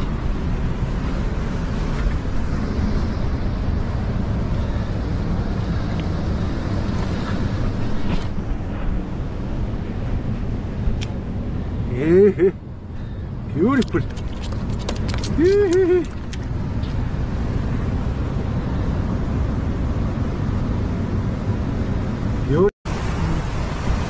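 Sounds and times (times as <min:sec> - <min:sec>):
surf washing over rock: 0:13.6 - 0:17.2.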